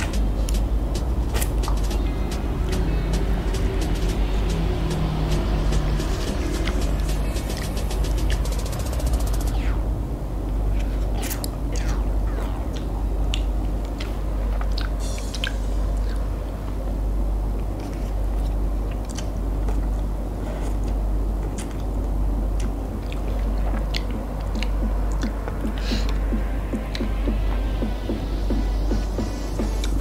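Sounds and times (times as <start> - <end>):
steady low hum: 0.0 - 30.0
chewing with wet smacks: 10.7 - 16.3, 17.6 - 27.9.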